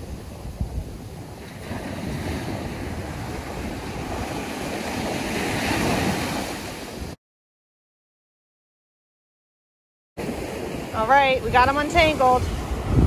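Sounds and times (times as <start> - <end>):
ocean surf breaking: 0.0 - 7.2, 10.2 - 13.0
wind rumbling on microphone: 0.0 - 7.2, 10.2 - 13.0.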